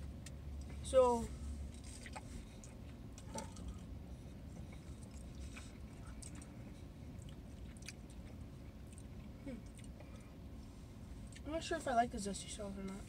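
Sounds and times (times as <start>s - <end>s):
faint low rumble: 0.0s - 13.0s
people chewing food: 1.6s - 11.4s.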